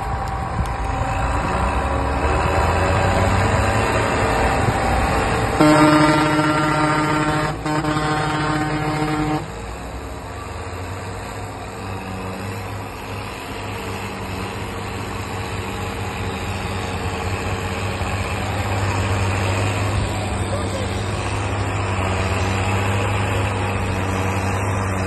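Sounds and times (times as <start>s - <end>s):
tractor diesel engine running: 0.0s - 25.0s
loud horn blast: 5.6s - 9.6s.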